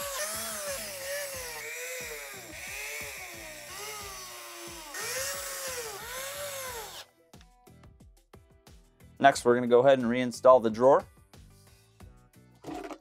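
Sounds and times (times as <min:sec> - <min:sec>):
cordless drill motor whine: 0:00.0 - 0:07.1.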